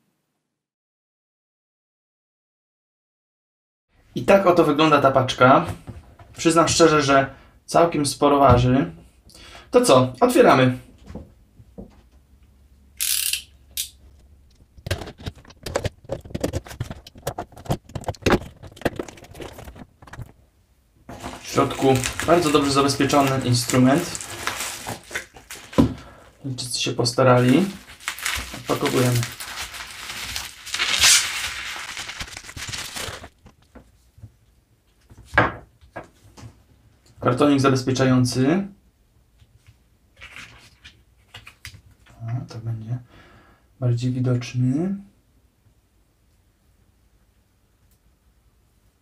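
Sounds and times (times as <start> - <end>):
cardboard crackling and scraping: 14.8 - 20.4, 21.1 - 26.2, 27.2 - 33.5
bubble wrap crinkling: 15.1 - 20.3, 21.1 - 33.6
packing tape ripping: 21.1 - 26.2, 27.4 - 33.4.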